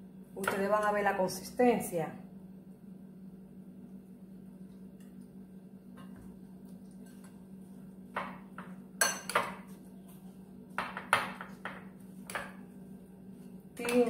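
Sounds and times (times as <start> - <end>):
steady low hum: 0.0 - 14.0
glass bowl clinking: 9.0 - 9.6.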